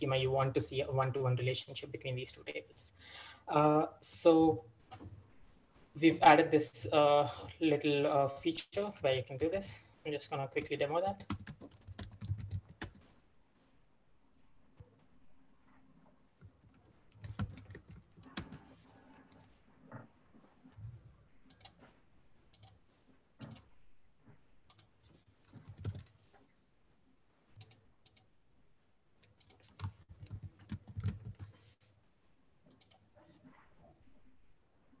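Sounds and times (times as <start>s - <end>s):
keyboard typing: 10.5s - 13.2s, 16.4s - 20.1s, 21.4s - 21.9s, 22.5s - 22.8s, 23.4s - 23.8s, 24.7s - 26.2s, 27.6s - 28.3s, 29.2s - 31.7s, 32.7s - 33.4s.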